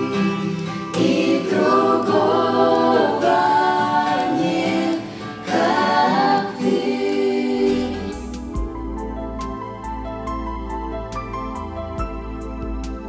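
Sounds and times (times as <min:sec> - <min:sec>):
people singing a worship song: 0:00.0 - 0:08.8
acoustic guitar: 0:00.0 - 0:13.0.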